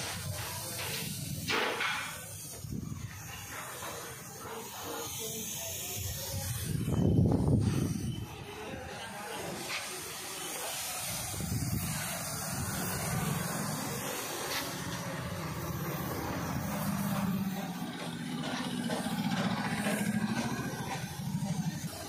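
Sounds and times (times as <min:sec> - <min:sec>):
spray gun hissing: 0:00.0 - 0:22.0
low pulsing mechanical drone: 0:10.8 - 0:22.0.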